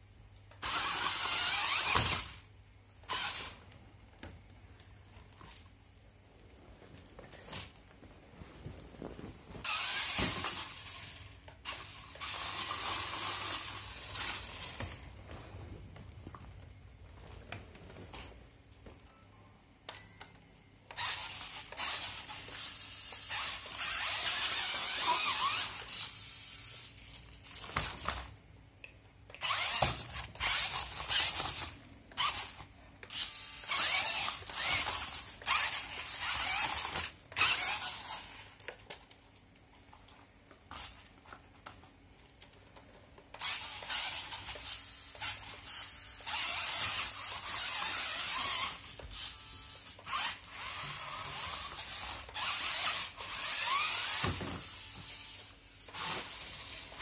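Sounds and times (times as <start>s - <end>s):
toy car motor and gearbox whirring: 0.5s - 3.7s, 9.6s - 15.0s, 20.8s - 28.3s, 29.3s - 57.0s.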